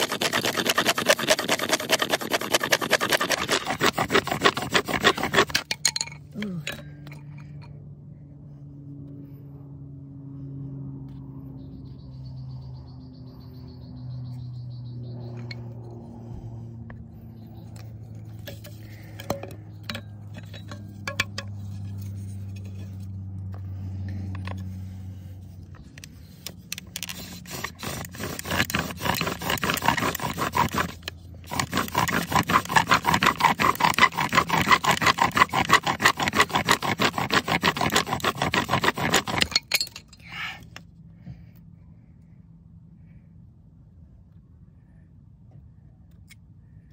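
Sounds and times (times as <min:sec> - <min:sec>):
bow drill scraping wood on wood: 0:00.0 - 0:05.8, 0:16.9 - 0:39.9.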